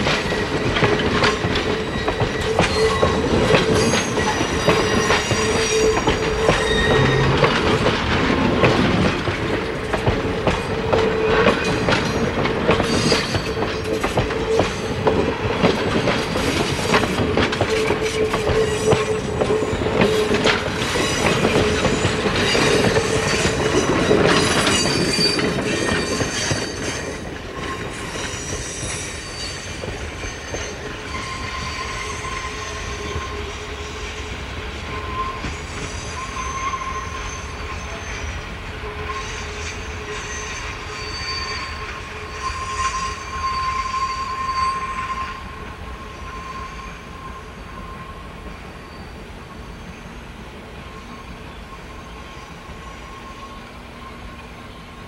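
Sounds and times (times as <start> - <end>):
train wheels clattering over rails: 0.0 - 36.4
wheel flange squeal: 1.2 - 7.9, 11.2 - 15.0, 16.4 - 34.2, 34.8 - 38.4, 39.0 - 50.0.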